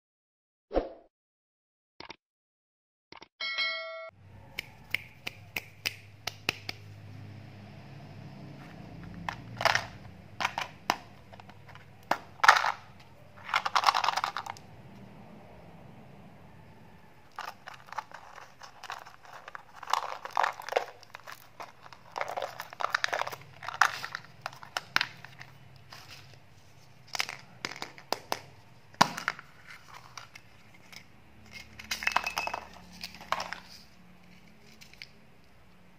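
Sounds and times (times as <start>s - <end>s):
hard candies rattling: 9.2s - 14.7s, 17.2s - 35.2s
wrapper crinkling: 17.3s - 28.0s.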